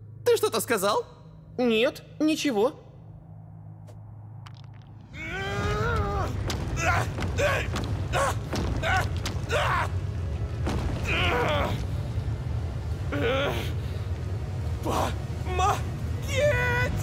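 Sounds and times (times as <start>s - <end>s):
steady low rumble: 0.0s - 17.0s
person groaning and crying out: 13.1s - 13.8s.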